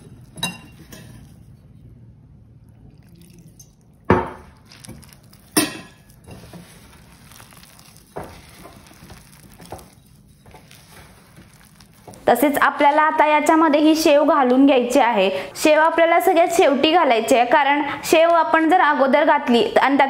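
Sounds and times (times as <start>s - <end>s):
hand kneading dough: 4.5s - 13.3s.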